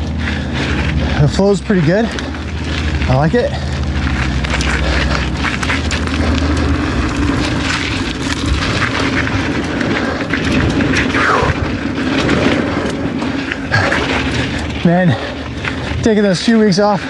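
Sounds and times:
bike clicks and knocks: 0.0 - 16.9
bike tyres rolling over dirt: 0.0 - 17.0
wind noise on microphone: 3.9 - 16.1.

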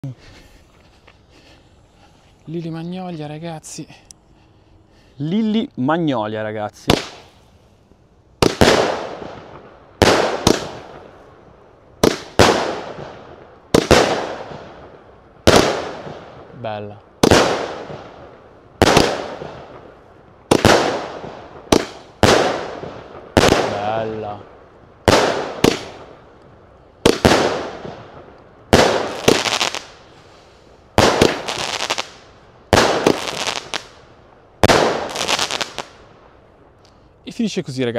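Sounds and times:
firework launch and shell burst bangs: 8.4 - 11.1, 12.0 - 14.8, 18.8 - 19.9, 20.5 - 23.9, 25.0 - 26.1, 27.0 - 30.0, 30.9 - 34.0, 34.6 - 35.9.

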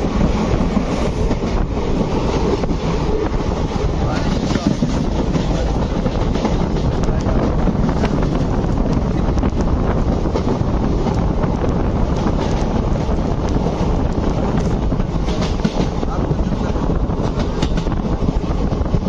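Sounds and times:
train running rumble: 0.0 - 19.0
wind rushing over microphone: 0.0 - 19.0.

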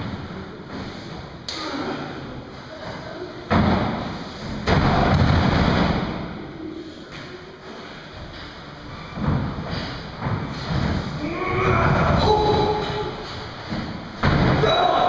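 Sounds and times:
bodies slamming onto mat: 13.7 - 14.8.

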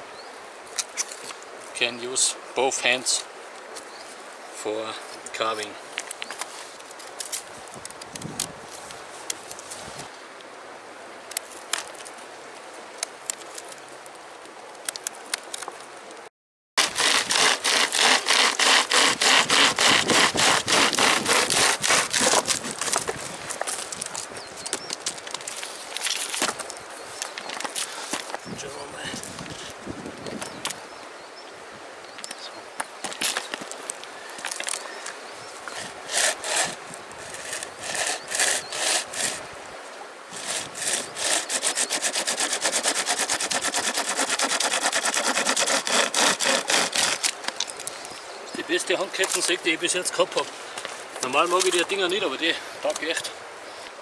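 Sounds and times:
hand chain saw rasping through log: 16.8 - 23.0, 35.7 - 39.5, 40.3 - 47.7.

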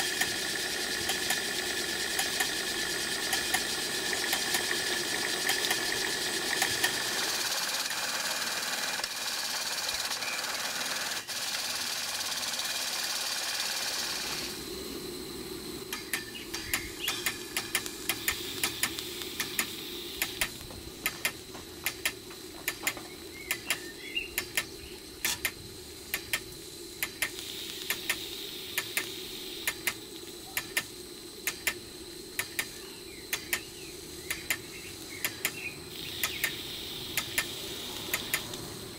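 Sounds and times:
model steam engine running: 0.0 - 38.9
steady low hum: 0.0 - 38.9
steam hissing: 0.0 - 38.9
sharp clicks: 0.1 - 1.4, 2.0 - 2.6, 3.2 - 7.1, 15.8 - 38.7.

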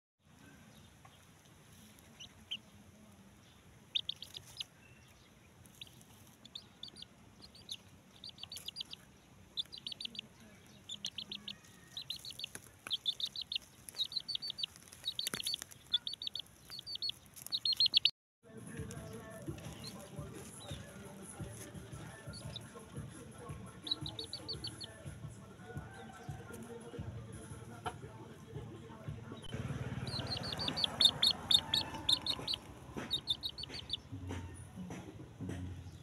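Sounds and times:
chick peeping: 0.8 - 18.1, 18.9 - 22.9, 23.7 - 25.0, 29.3 - 34.6
chick pecking at food: 0.9 - 18.1, 18.7 - 28.0, 30.0 - 34.6.

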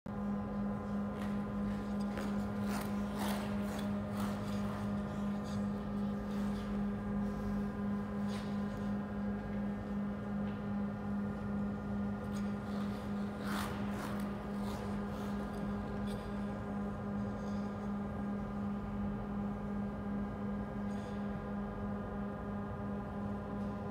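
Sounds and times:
low throbbing hum: 0.1 - 23.8
skate blades scraping ice: 1.1 - 6.8, 12.2 - 16.5.

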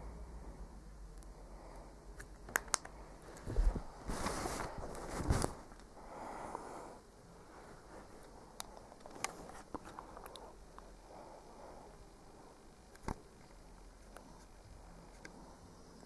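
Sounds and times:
rustling scrapes on fabric: 3.4 - 5.7.

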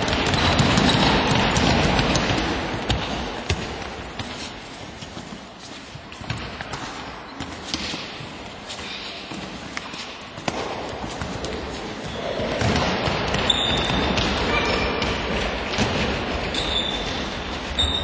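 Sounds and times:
noise of play in hall: 0.0 - 18.0.

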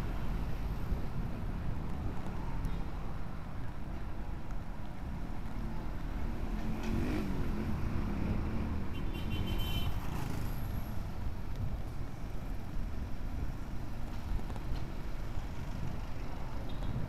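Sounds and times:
wind and road noise: 0.0 - 17.0
car and motorcycle engines: 5.4 - 11.8.

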